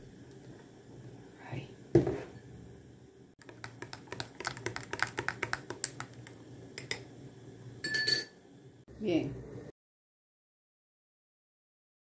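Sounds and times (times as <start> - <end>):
spoon tapping container: 3.4 - 7.0
spoon scrape with ringing: 7.8 - 8.4.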